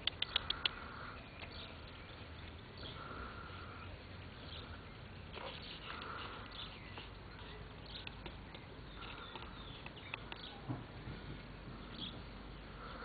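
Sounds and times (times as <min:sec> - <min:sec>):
light clicks: 0:00.0 - 0:00.8.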